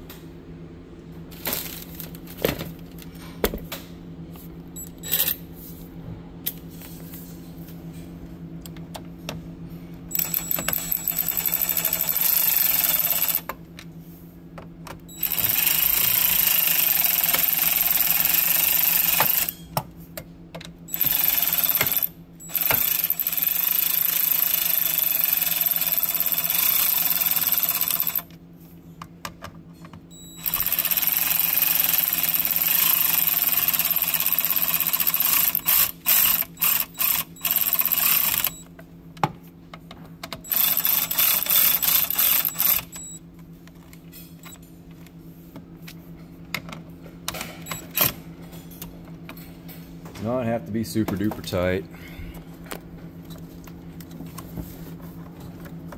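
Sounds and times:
cordless ratchet running: 10.1 - 13.5, 15.1 - 19.6, 20.9 - 28.3, 30.4 - 38.6, 40.5 - 43.2.

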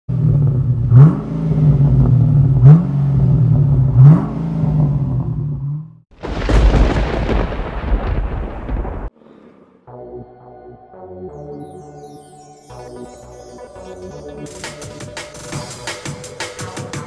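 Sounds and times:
car exhaust idling and revving: 0.1 - 6.1
crackling thunder sound effect: 6.2 - 9.1.

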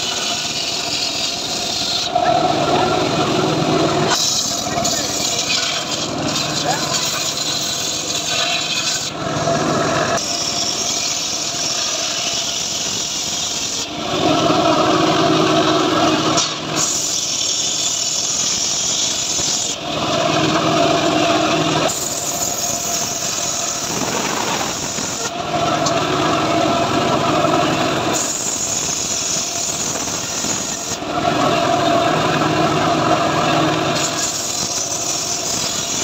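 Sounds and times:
circular saw cutting wood: 0.0 - 36.0.

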